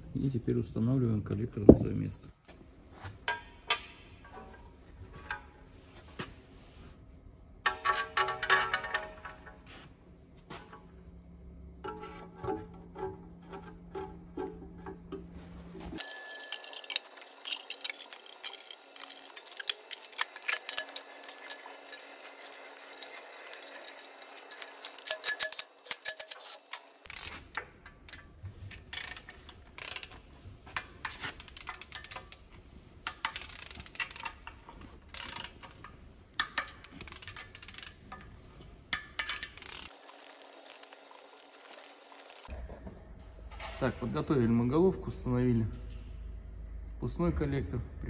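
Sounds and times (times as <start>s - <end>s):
low background hum: 0.0s - 48.0s
metal tools clinking and tapping: 7.6s - 9.6s, 16.0s - 32.4s.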